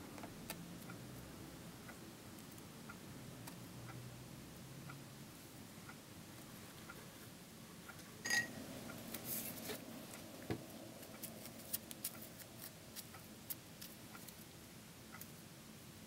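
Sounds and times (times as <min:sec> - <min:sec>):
ringing clink: 0:08.2 - 0:08.6.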